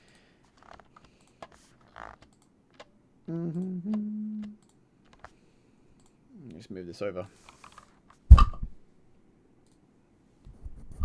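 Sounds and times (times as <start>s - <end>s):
person humming: 3.2s - 4.6s.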